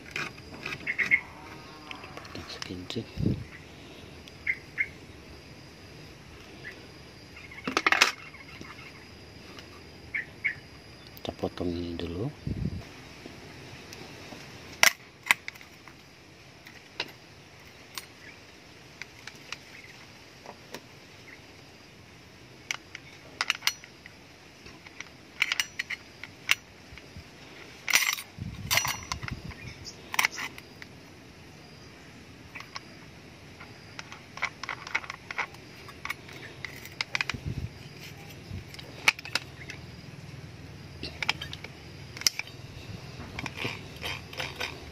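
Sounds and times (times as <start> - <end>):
metal clicks and clinks: 22.7 - 27.1, 27.8 - 30.9, 34.0 - 39.8, 41.0 - 42.6, 43.3 - 44.9.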